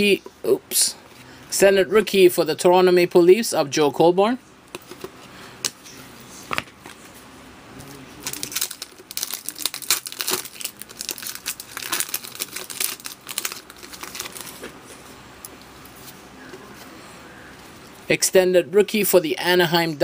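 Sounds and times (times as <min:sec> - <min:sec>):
foil wrapper crinkling: 0:08.2 - 0:14.7.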